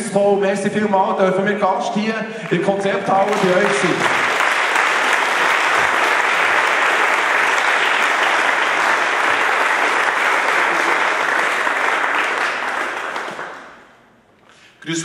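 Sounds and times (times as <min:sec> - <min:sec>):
audience applauding: 0:02.4 - 0:14.0.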